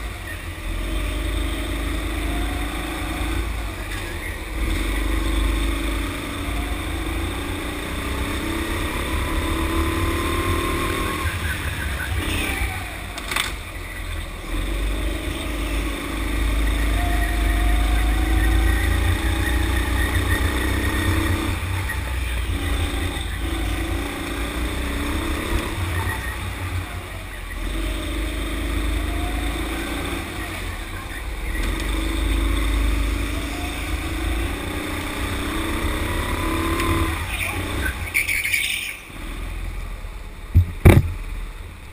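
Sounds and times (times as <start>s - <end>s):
kart engine revving: 0.0s - 41.9s
sharp knock: 40.6s - 41.2s.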